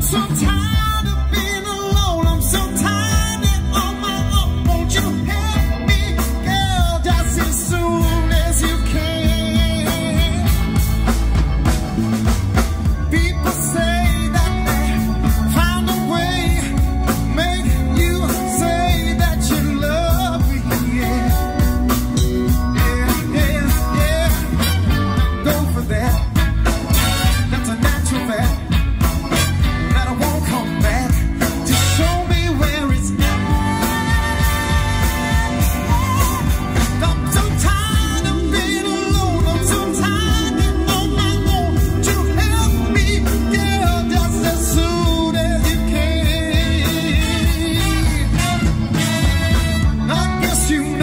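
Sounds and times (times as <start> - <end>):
drums: 0.0 - 51.0
keyboard: 0.0 - 51.0
people singing: 13.0 - 24.8, 29.9 - 51.0
saxophones: 31.6 - 50.8.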